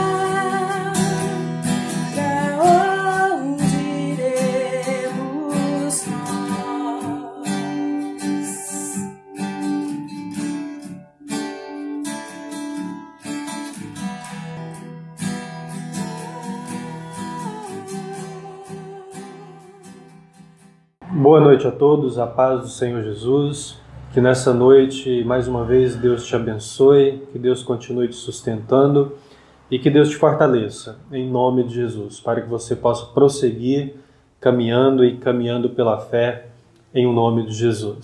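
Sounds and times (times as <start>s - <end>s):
woman singing worship song: 0.0s - 9.1s, 16.0s - 19.8s
acoustic guitar strumming: 0.0s - 21.2s.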